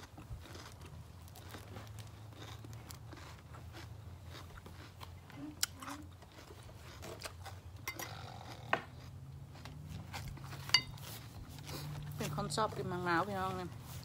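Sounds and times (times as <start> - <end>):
cutlery clinking against bowl: 10.7 - 11.0.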